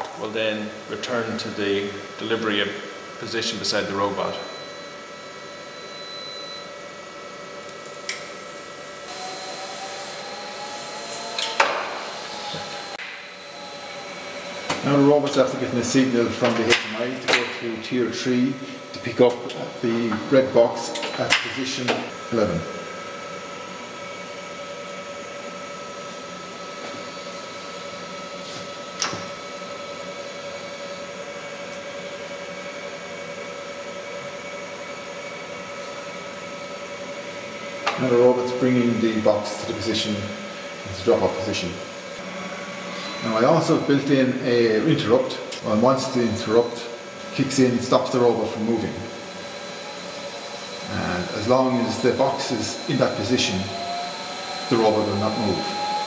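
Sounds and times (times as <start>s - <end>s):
conveyor motor running: 0.0s - 56.0s
faint whine: 0.0s - 56.0s
small click: 7.6s - 8.4s, 11.4s - 11.8s.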